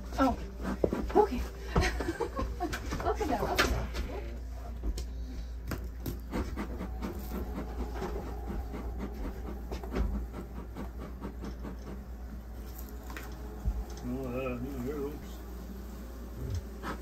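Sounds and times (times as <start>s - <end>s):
hand saw rasping through plasterboard: 6.1s - 12.1s, 16.7s - 17.0s.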